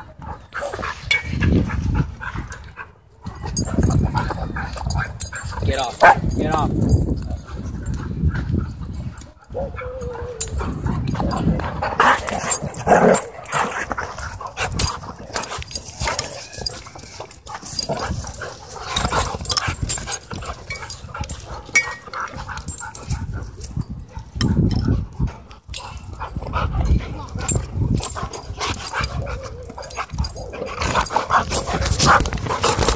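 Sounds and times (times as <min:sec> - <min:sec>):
dogs barking and yipping: 0:00.0 - 0:32.9
dogs scuffling: 0:27.4 - 0:32.9.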